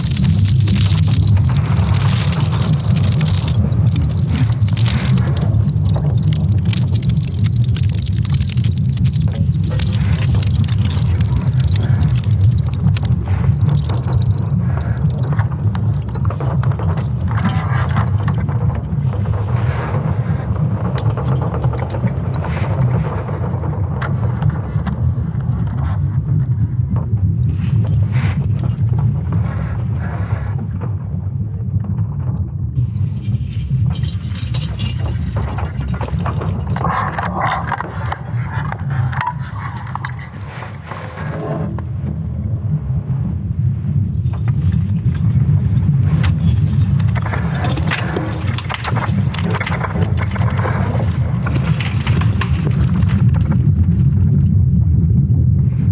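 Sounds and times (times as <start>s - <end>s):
deep unbroken rumble: 0.0s - 36.9s
crackles and creaks: 0.0s - 55.9s.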